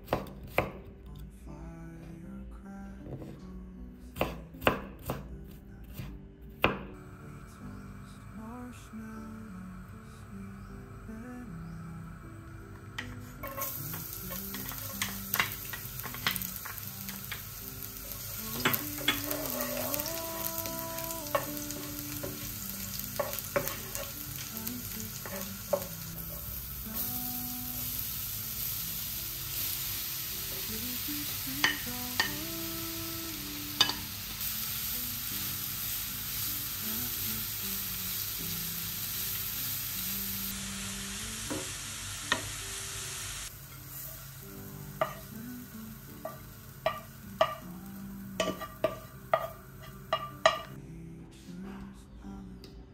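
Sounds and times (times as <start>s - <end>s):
food sizzling in oil: 12.9s - 50.8s.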